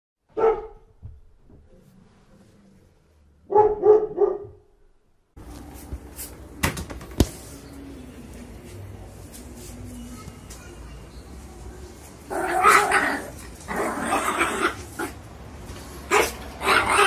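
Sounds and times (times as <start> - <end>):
puppy barking: 0.3 - 0.9, 3.4 - 4.6, 16.1 - 17.0.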